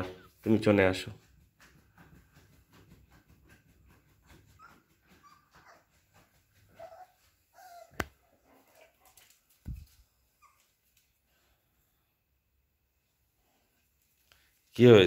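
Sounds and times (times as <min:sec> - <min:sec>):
puppy whining: 0:04.3 - 0:08.9, 0:09.7 - 0:11.0.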